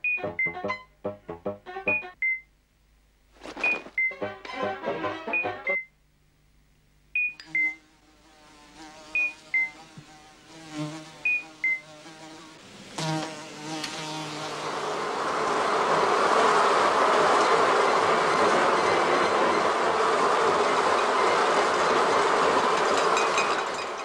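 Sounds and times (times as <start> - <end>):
short high two-note beeps: 0.0 - 2.4, 5.3 - 5.9
fly buzzing: 7.5 - 15.2
swarm of flies droning: 8.1 - 22.3.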